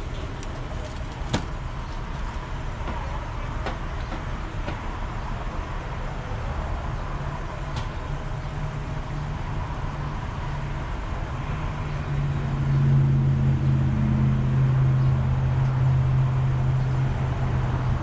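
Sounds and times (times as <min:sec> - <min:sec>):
vehicle engine idling: 0:00.0 - 0:11.2.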